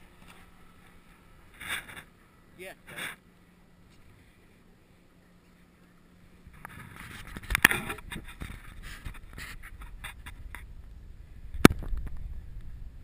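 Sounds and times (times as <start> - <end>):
low rumble: 6.3 - 13.0
clicks and rustles: 6.5 - 10.7.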